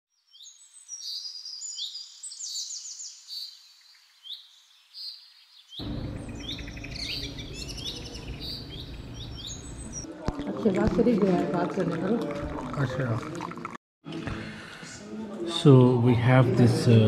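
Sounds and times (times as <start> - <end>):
small birds chirping: 0.2 - 10.1.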